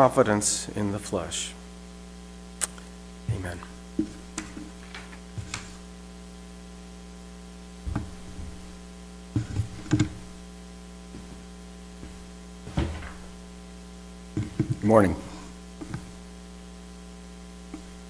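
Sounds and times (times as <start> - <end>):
electrical mains hum: 0.0 - 18.0
handling knocks on wooden pulpit: 7.9 - 8.6, 9.4 - 10.2, 12.7 - 13.3.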